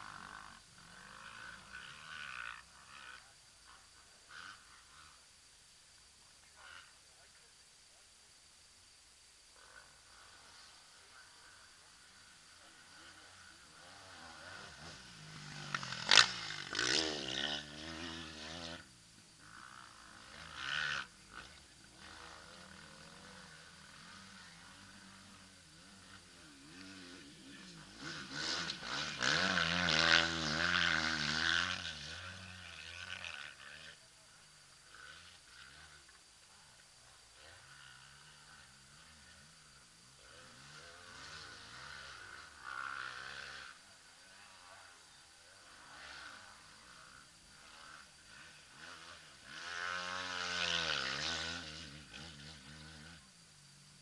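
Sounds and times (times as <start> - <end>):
engine running: 12.4 - 44.8.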